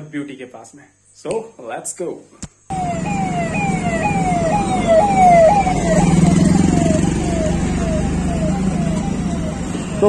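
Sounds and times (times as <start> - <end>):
motorcycle engine running: 2.7 - 10.0
siren-like electronic tone: 2.7 - 10.0.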